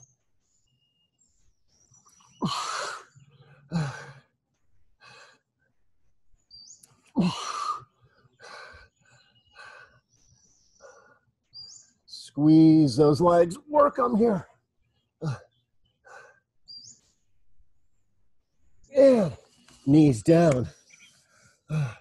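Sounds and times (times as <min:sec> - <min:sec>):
faint bird chirps: 0:00.0 - 0:05.0, 0:05.6 - 0:12.4, 0:14.5 - 0:21.8.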